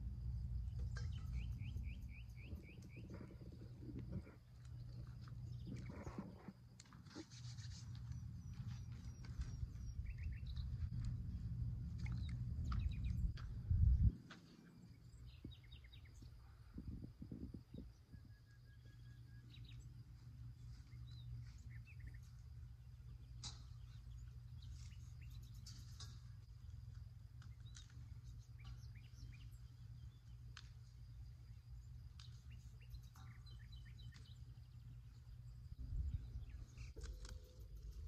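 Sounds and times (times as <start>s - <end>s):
small birds chirping: 0.4s - 11.2s, 11.9s - 38.0s
low rumble: 8.2s - 14.2s.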